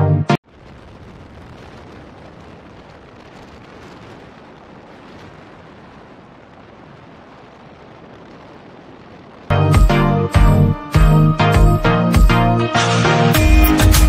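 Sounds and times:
wind rushing on microphone: 0:00.4 - 0:09.5.

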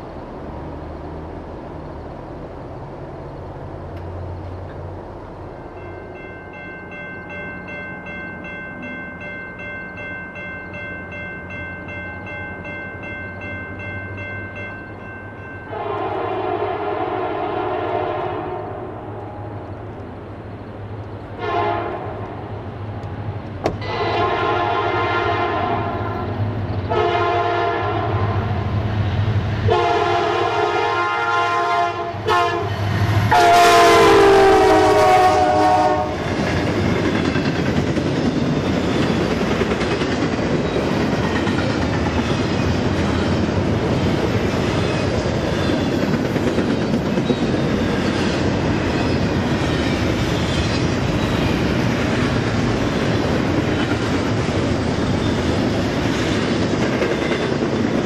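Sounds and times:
train rumble: 0:00.0 - 0:58.0
crossing warning bell ringing: 0:05.3 - 0:17.1
train horn blasts: 0:15.7 - 0:19.5, 0:21.4 - 0:22.6, 0:23.8 - 0:28.7, 0:29.7 - 0:36.3.

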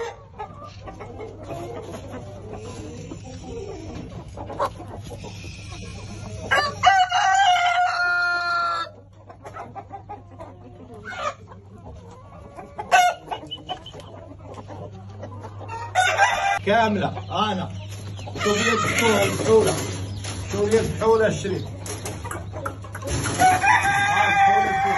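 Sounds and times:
chickens clucking: 0:00.0 - 0:24.9
rooster crowing: 0:06.5 - 0:08.9, 0:15.9 - 0:16.6, 0:23.4 - 0:24.9.

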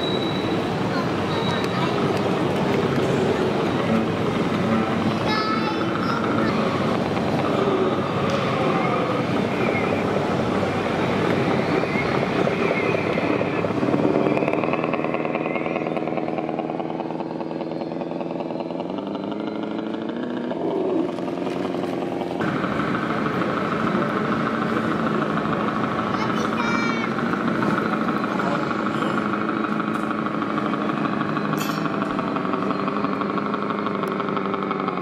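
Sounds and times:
crowd chatter: 0:00.0 - 0:15.2, 0:22.4 - 0:35.0
toy diesel engine sound: 0:00.0 - 0:35.0.

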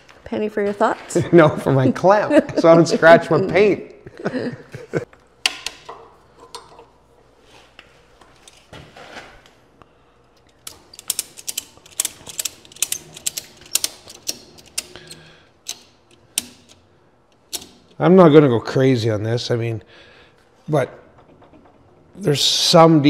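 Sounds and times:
metal clicking and rattling: 0:10.4 - 0:18.0.

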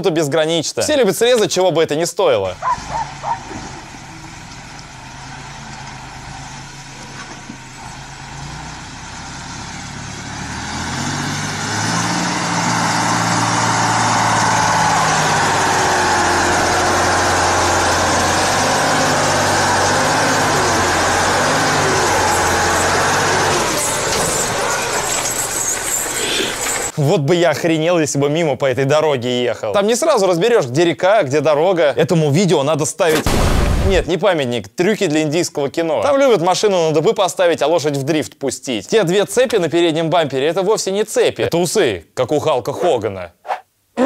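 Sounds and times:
truck engine revving: 0:02.5 - 0:27.0.

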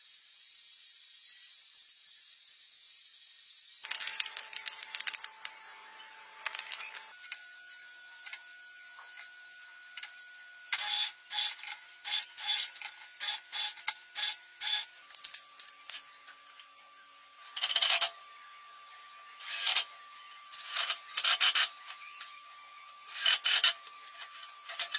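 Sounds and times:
rubbing and scraping clicks: 0:03.8 - 0:05.6, 0:06.4 - 0:07.1.

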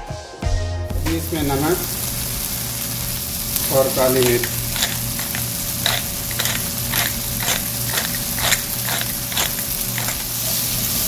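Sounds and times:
vegetables sizzling in oil: 0:01.0 - 0:11.0
wooden spatula scraping pan: 0:04.0 - 0:10.3.

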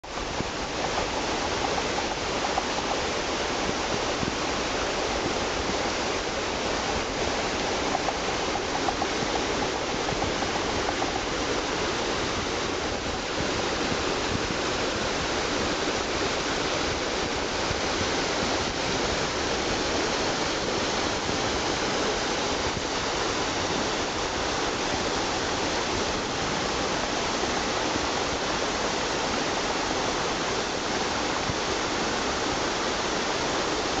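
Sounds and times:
stream rushing over stones: 0:00.0 - 0:34.0.

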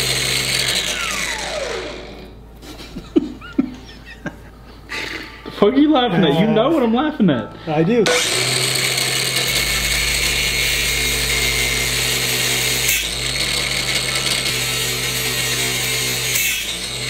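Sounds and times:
angle grinder cutting metal: 0:00.0 - 0:02.4, 0:07.6 - 0:17.0.

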